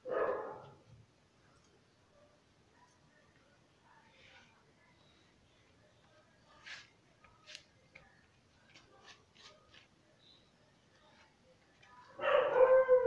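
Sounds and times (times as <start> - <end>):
dog howling: 12.2 - 13.0.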